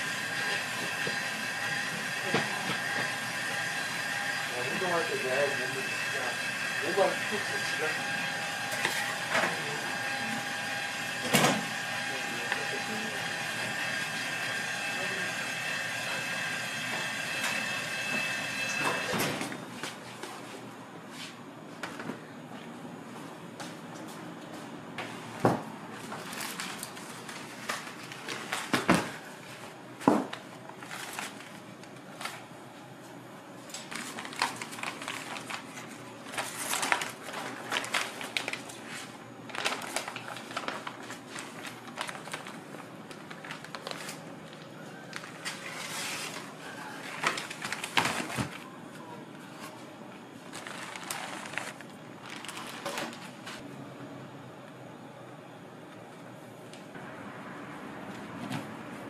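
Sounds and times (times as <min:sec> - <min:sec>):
baking paper rustling and crinkling: 0:25.9 - 0:29.7, 0:30.3 - 0:32.5, 0:33.8 - 0:48.8, 0:49.4 - 0:53.6.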